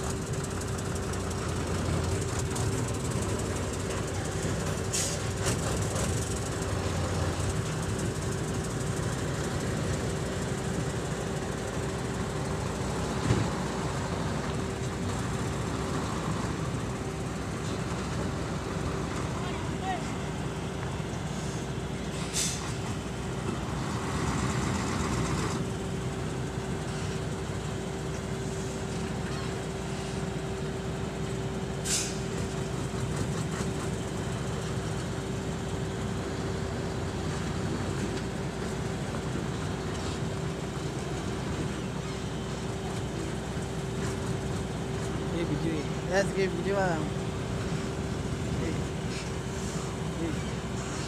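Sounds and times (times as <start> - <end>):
diesel truck engine running: 0.0 - 51.0
short hisses: 21.3 - 22.8, 31.8 - 32.3.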